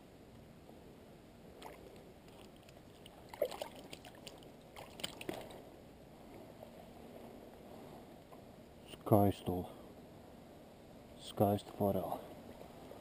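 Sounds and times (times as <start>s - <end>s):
faint stream flow: 0.0s - 13.0s
water splashing: 1.6s - 5.7s.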